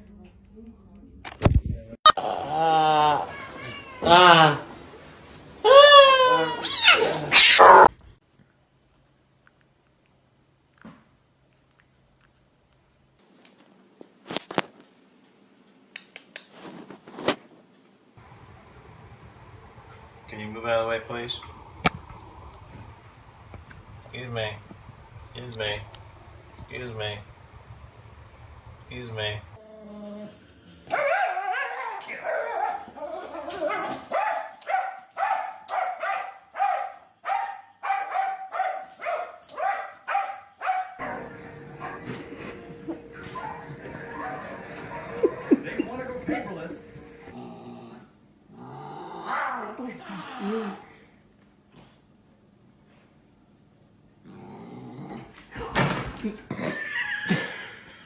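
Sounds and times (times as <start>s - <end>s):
small dog yelping: 5.6s - 7.9s, 30.9s - 42.2s
small dog yipping: 5.7s - 7.9s.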